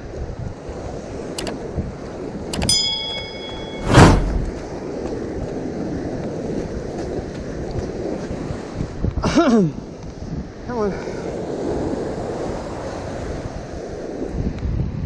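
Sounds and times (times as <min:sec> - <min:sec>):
wind buffeting microphone: 0:00.0 - 0:15.0
click and bell chime: 0:02.5 - 0:04.5
sudden loud rush of noise: 0:03.6 - 0:04.6.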